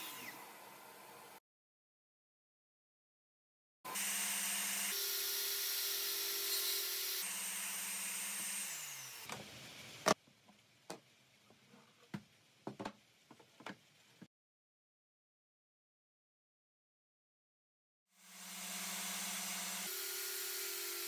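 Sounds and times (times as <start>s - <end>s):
wood knocking on saw table: 12.1s - 13.8s
table saw running: 18.2s - 21.0s.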